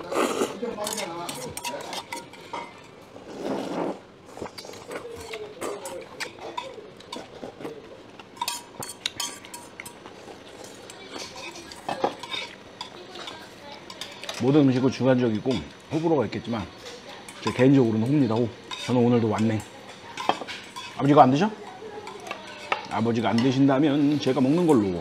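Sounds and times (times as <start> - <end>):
metal chopsticks clinking on bowls: 0.8 - 2.9, 5.0 - 14.8, 16.8 - 23.8.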